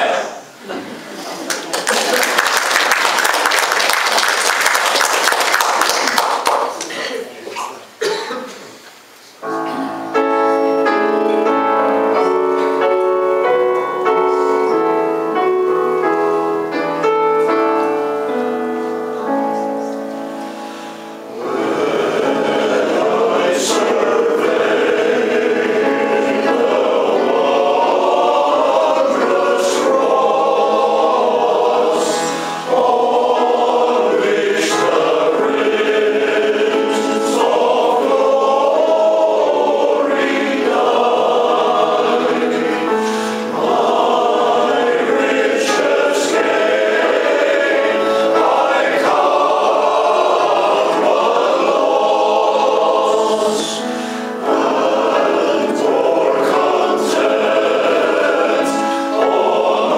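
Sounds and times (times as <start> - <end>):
male voice choir singing: 21.3 - 59.9.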